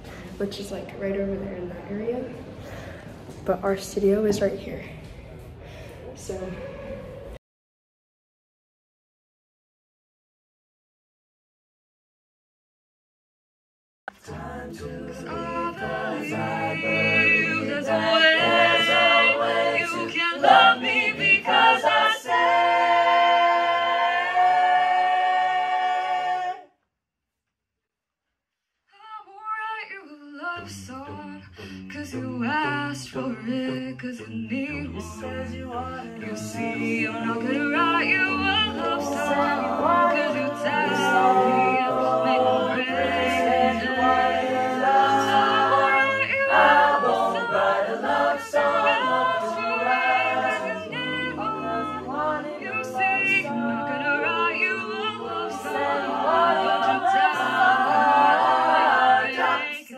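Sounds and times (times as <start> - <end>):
a cappella group singing: 14.1 - 26.7, 29.4 - 59.9.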